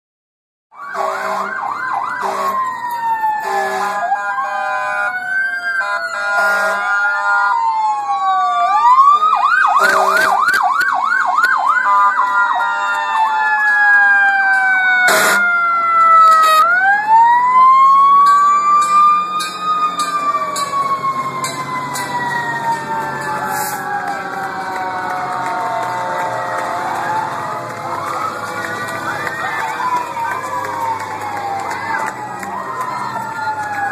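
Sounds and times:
emergency sirens wailing and yelping: 0:00.7 - 0:33.9
vehicle horn blasts: 0:01.0 - 0:01.6, 0:02.2 - 0:02.6, 0:03.4 - 0:04.0, 0:06.2 - 0:06.8, 0:09.8 - 0:10.5, 0:15.1 - 0:15.4.

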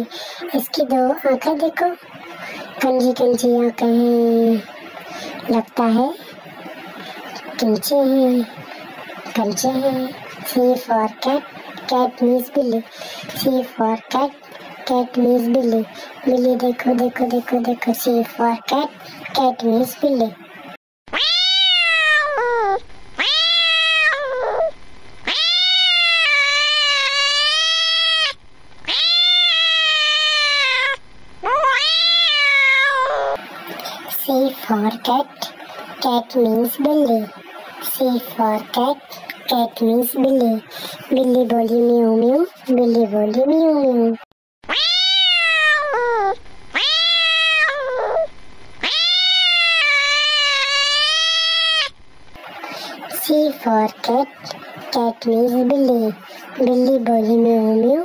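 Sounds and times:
cat meowing: 0:21.1 - 0:33.4, 0:44.7 - 0:51.9.

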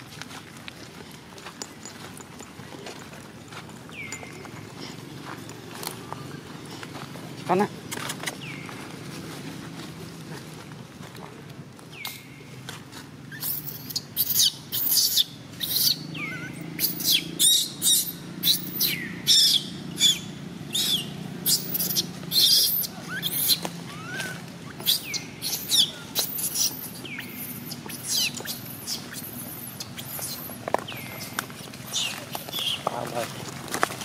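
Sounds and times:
high-pitched chirping calls: 0:13.3 - 0:32.9.

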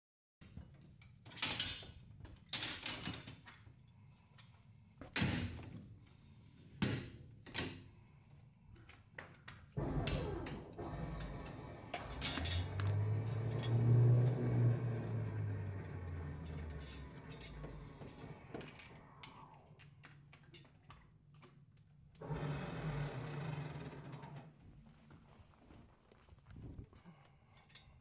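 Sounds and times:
low machine hum: 0:09.8 - 0:19.7.

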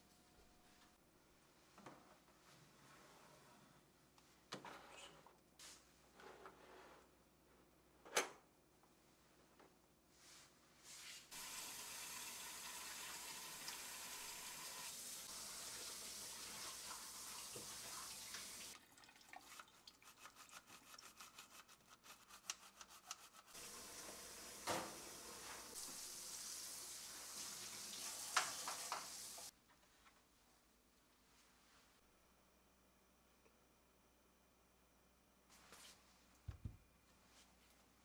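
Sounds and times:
brush scrubbing drip tray: 0:19.4 - 0:24.1
tap running into sink: 0:27.9 - 0:29.5.

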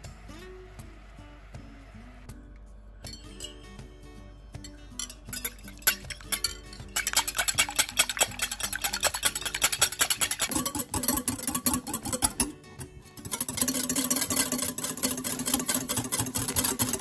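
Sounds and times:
soft background music: 0:00.0 - 0:17.0
utensil clinking against a bowl: 0:03.0 - 0:03.9, 0:04.6 - 0:17.0.

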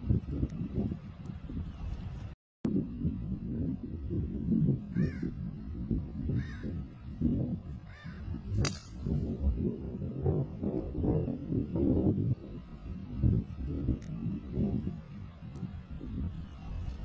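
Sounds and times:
low rumble: 0:00.0 - 0:17.0
bird cawing: 0:04.9 - 0:05.4, 0:06.3 - 0:06.8, 0:07.9 - 0:08.3
golf club striking ball: 0:08.6 - 0:09.2.

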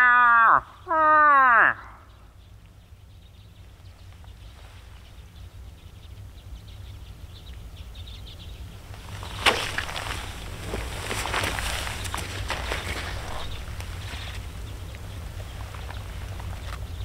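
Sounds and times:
wind rumble on microphone: 0:02.2 - 0:17.0.

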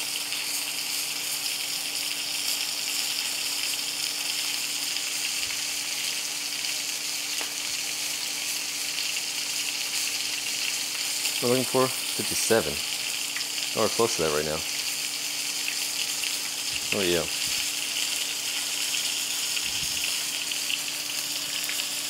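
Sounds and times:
steaks sizzling in a pan: 0:00.0 - 0:22.0.

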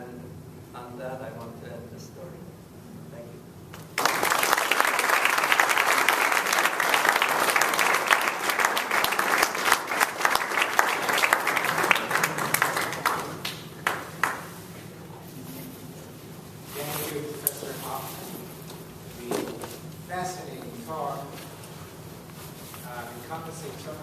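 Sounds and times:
audience applauding: 0:04.0 - 0:14.6.

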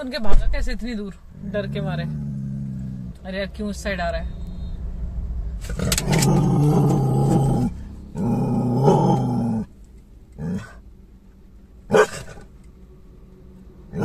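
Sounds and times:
dog growling: 0:01.3 - 0:03.2, 0:05.6 - 0:09.7, 0:10.4 - 0:10.8, 0:11.9 - 0:12.5.

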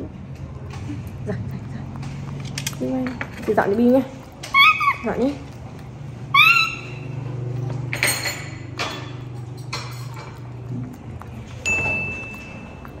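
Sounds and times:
ringing clink of tableware: 0:11.7 - 0:12.6.

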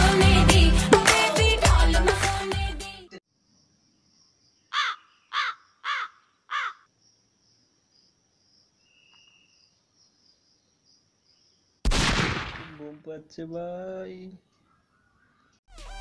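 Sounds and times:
crow cawing: 0:04.7 - 0:06.9.

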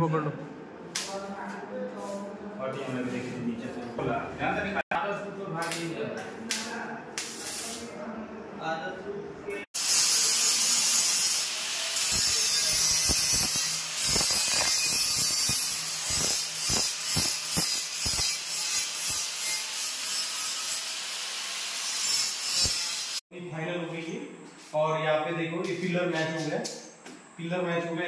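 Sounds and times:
angle grinder rasping on steel: 0:09.8 - 0:23.2.

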